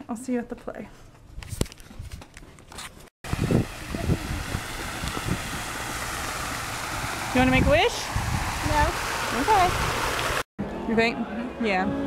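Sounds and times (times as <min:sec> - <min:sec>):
camera handling rustle: 0:01.4 - 0:03.1
water fountain splashing: 0:03.3 - 0:10.4.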